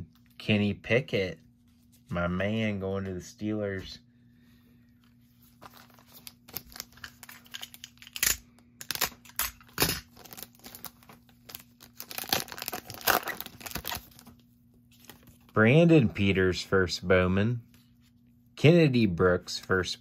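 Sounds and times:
foil wrapper tearing and crinkling: 5.6s - 14.4s.

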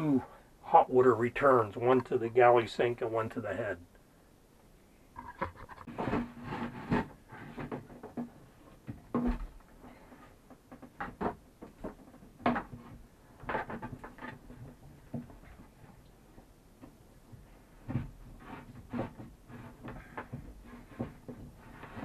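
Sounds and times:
plastic hose knocking and rubbing: 5.2s - 22.0s.

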